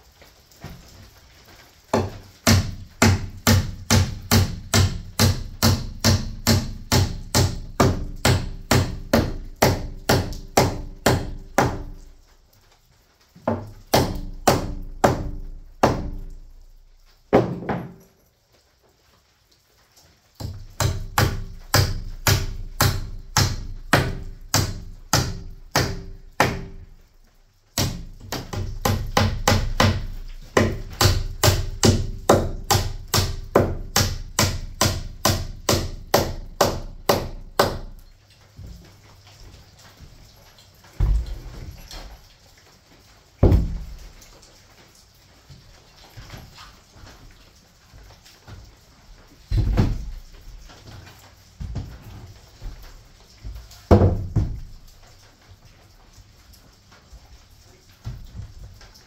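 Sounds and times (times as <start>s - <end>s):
hammer driving nails into wood: 2.0s - 12.0s, 27.8s - 37.9s.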